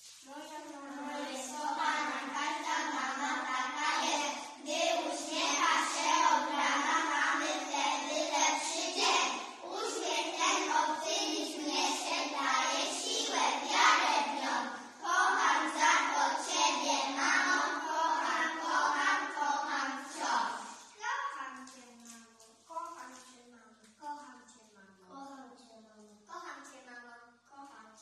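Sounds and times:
children singing in unison: 0.9 - 20.8.

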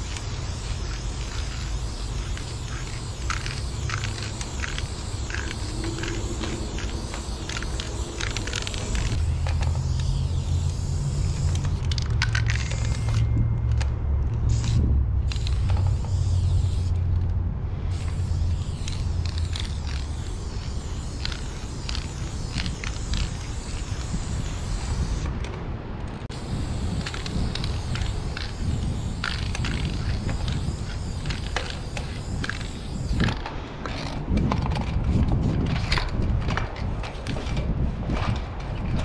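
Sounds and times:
spray-paint can hissing: 0.0 - 13.8, 14.4 - 17.1, 17.8 - 25.3, 26.3 - 34.1
low rumble: 2.7 - 24.9.

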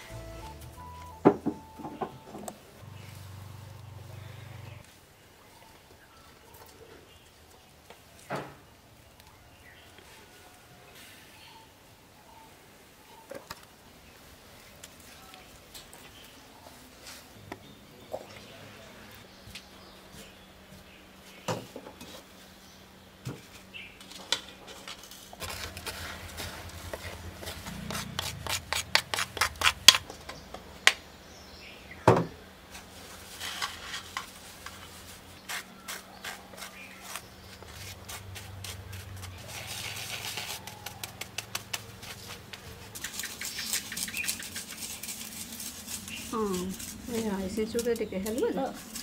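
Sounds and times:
spoon scraping in a wire sieve: 35.5 - 41.2.

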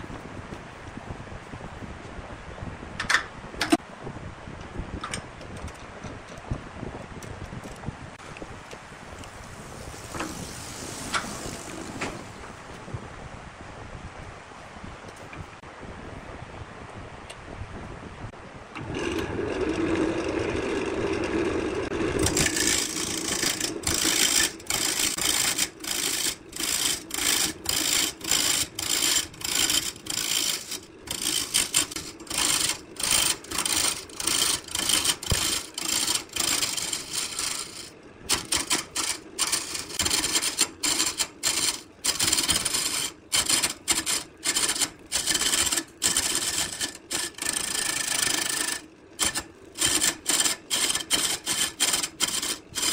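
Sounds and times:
lathe motor hum: 18.8 - 52.9
gouge cutting wood: 21.9 - 52.9.

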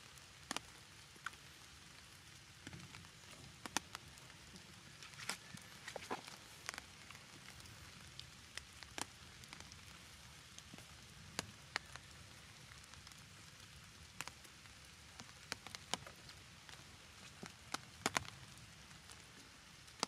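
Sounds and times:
drops tapping on umbrella: 17.2 - 18.3.

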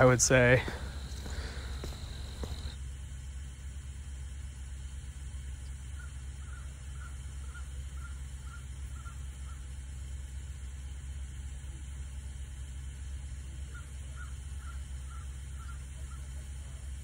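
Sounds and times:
steady low rumble: 0.0 - 17.0
bird calling faintly: 13.6 - 16.8.

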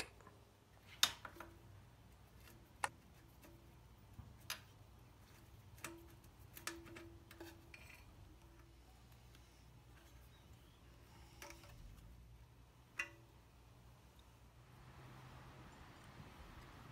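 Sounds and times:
light metallic clicks and taps: 12.9 - 13.4.

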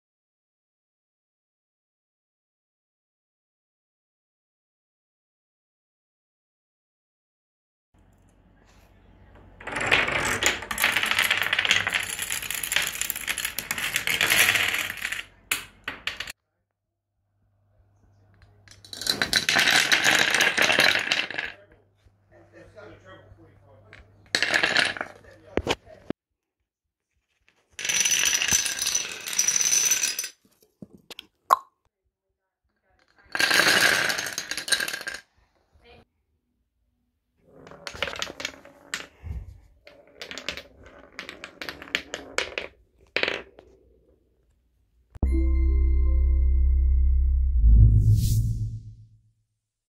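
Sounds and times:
wooden dominoes toppling: 9.7 - 16.4, 18.8 - 21.6, 23.9 - 25.8, 27.7 - 30.4, 33.3 - 35.3, 37.6 - 39.1, 39.9 - 43.7.

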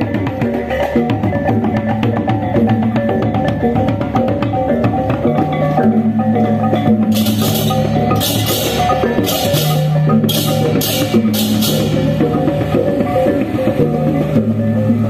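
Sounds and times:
metallophones struck in patterns: 0.0 - 15.0
clashing cymbals: 7.1 - 14.5.

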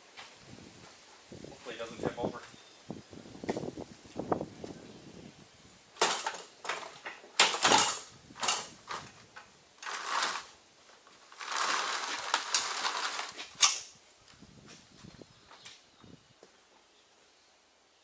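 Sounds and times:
rubber track scraping and clanking on concrete: 6.0 - 13.9.

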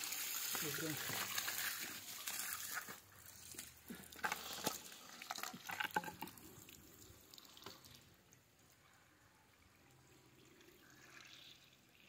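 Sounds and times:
water gushing from pipe: 0.0 - 8.1.

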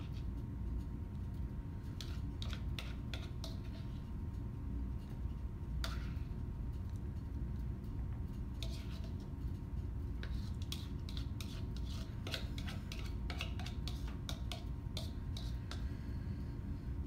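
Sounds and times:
steady low hum: 0.0 - 17.0
spoon scraping a mixing bowl: 1.8 - 4.2, 5.0 - 6.3, 8.3 - 15.9.

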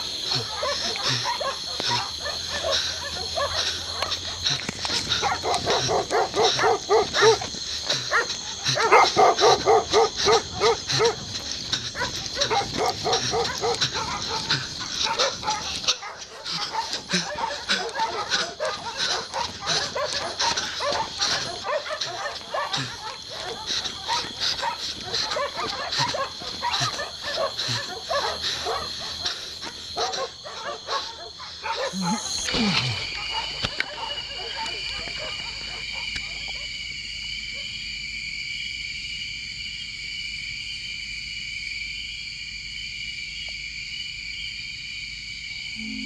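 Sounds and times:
dogs barking rapidly: 0.0 - 36.8
high-pitched background tone: 45.8 - 46.0.

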